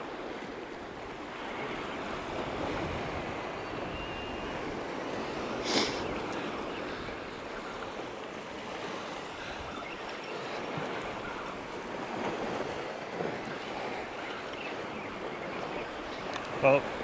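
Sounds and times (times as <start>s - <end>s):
sea surf washing on rocks: 0.0s - 17.0s.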